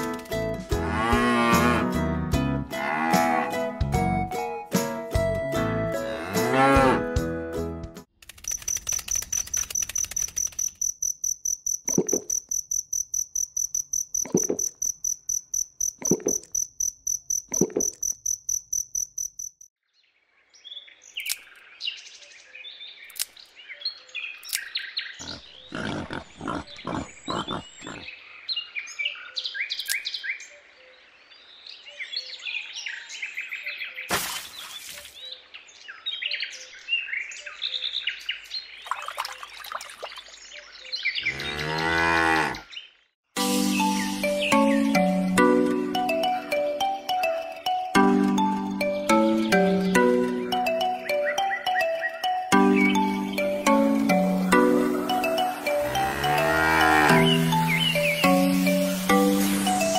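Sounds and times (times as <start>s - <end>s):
high-pitched insect-like trill: 8.4s - 19.7s
high bird chirps: 57.2s - 59.9s.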